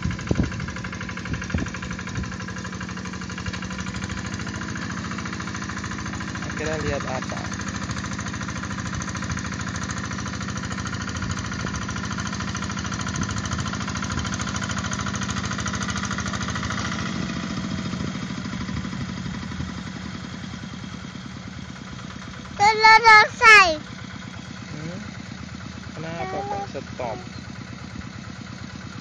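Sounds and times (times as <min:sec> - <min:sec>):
diesel engine chugging: 0:00.0 - 0:29.0.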